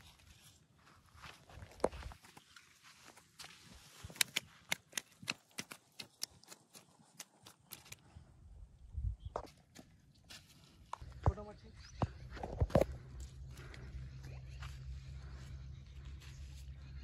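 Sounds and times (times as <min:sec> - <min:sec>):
fish flopping on wet mud: 0:04.1 - 0:08.0.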